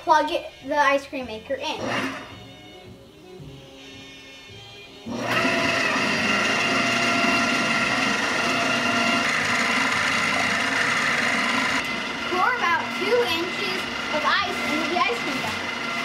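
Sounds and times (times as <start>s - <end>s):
ice cream maker motor whining: 1.8s - 2.8s, 5.0s - 16.0s.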